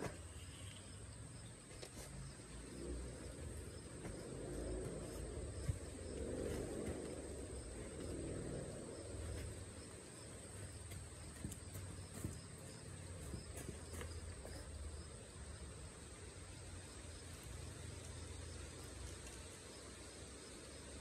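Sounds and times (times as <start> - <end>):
insects chirping: 0.0 - 21.0
low rumble: 2.7 - 9.8.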